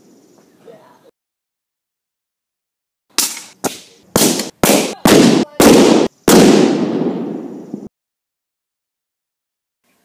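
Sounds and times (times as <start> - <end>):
gas explosion booms: 4.2 - 7.9.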